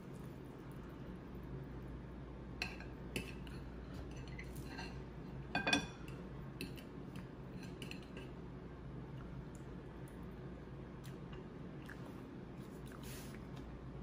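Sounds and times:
fork clinking on ceramic plate: 5.6 - 6.1.

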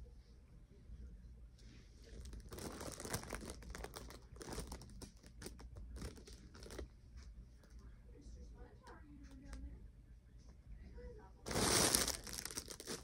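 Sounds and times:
hands handling plastic doll: 2.2 - 6.9, 11.5 - 13.0.

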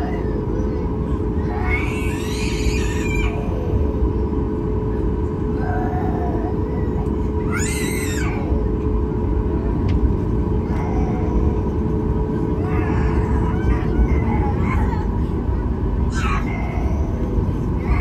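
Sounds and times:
airliner cabin rumble: 0.0 - 18.0
faint passenger voices: 0.0 - 18.0
high-pitched cry: 7.5 - 8.5.

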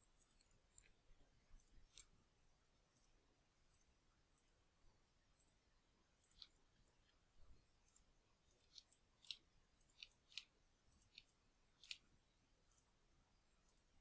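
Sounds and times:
computer mouse clicks: 0.0 - 2.2, 2.9 - 4.6, 5.3 - 5.6, 6.2 - 7.2, 7.8 - 13.0, 13.6 - 14.0.

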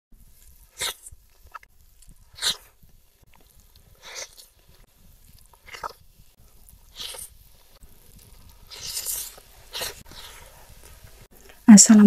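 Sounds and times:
loud bites and crunches: 0.2 - 11.2
faint chewing: 0.2 - 11.7.

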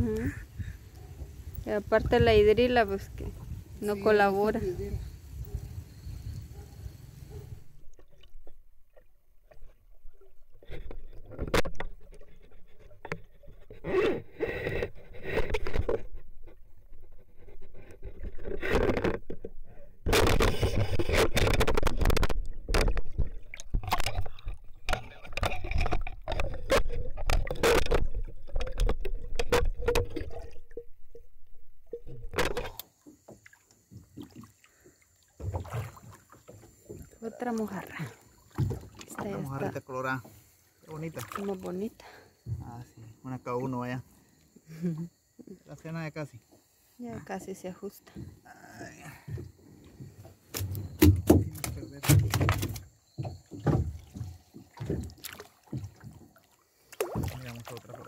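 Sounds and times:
churning water: 0.0 - 44.0, 47.2 - 58.0
knocks and scrapes on boat: 6.5 - 30.9, 31.9 - 34.5, 38.2 - 41.2, 46.3 - 58.0.

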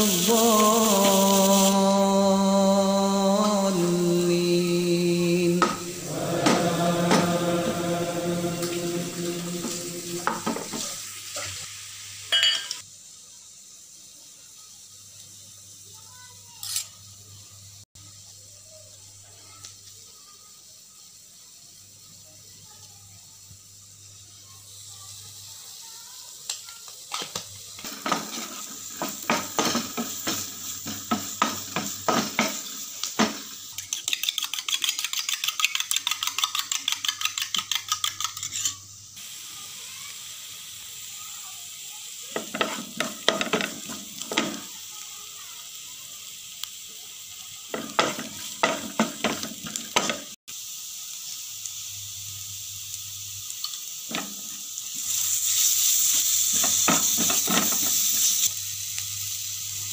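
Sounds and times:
onion sizzling in oil: 0.0 - 59.9
wooden spatula scraping pan: 5.6 - 10.9.

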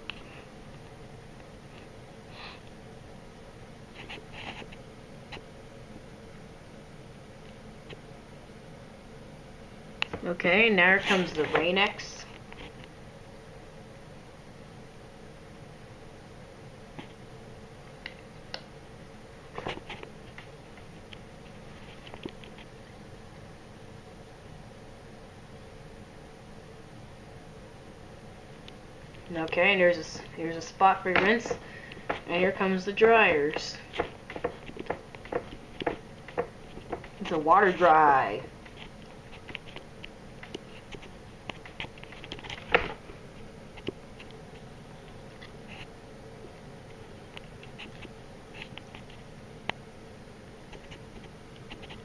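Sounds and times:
steady low hum: 0.0 - 52.0
sharp clicks and taps: 33.5 - 37.2.

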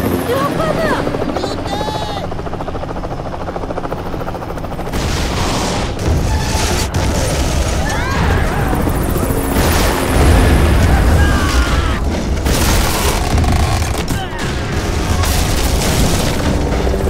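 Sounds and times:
helicopter rotor chop: 0.0 - 17.0
person shouting: 0.2 - 2.3, 10.8 - 12.0
explosions: 4.9 - 16.8.

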